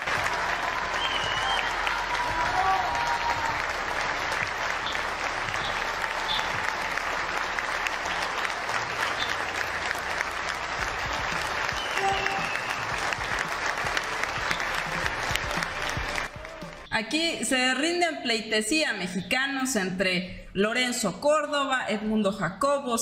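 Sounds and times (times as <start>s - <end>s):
crowd applauding: 0.0s - 16.9s.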